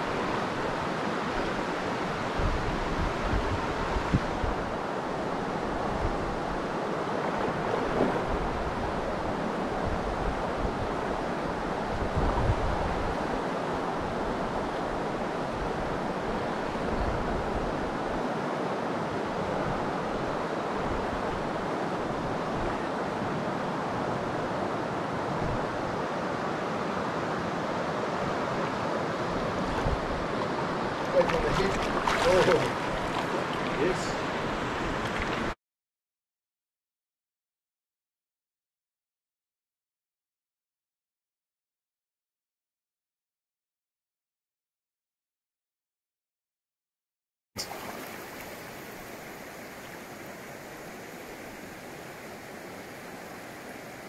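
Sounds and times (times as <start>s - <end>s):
wind buffeting microphone: 2.3s - 4.8s, 11.6s - 13.2s, 29.2s - 35.6s
stream rushing over stones: 30.2s - 35.6s, 47.6s - 54.0s.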